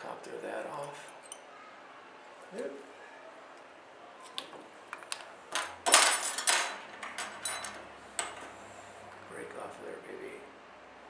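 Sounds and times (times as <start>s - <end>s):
metal tools clicking and clinking: 1.2s - 1.4s, 5.5s - 8.5s
metal tools rattling clatter: 5.5s - 8.5s.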